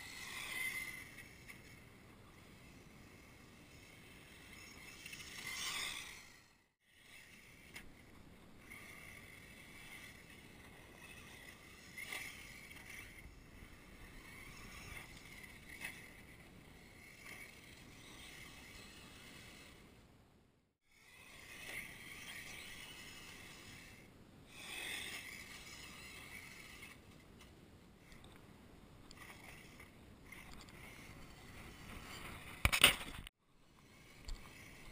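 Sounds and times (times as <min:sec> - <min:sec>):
radio-controlled car motor whine: 0:00.0 - 0:19.8, 0:20.9 - 0:27.1, 0:33.7 - 0:34.9.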